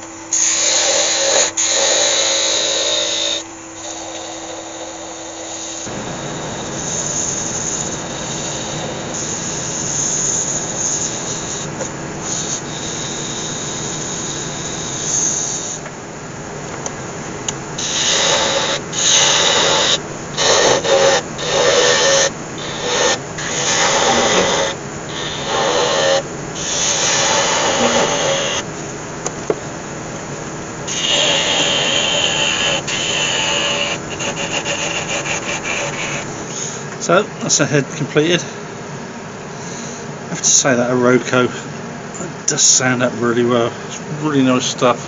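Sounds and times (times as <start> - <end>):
sandpaper rasping on spinning wood: 0.3 - 15.8, 17.8 - 28.7, 30.9 - 36.3
hand tool cutting spinning wood: 0.3 - 15.9, 16.8 - 28.7, 30.9 - 36.3.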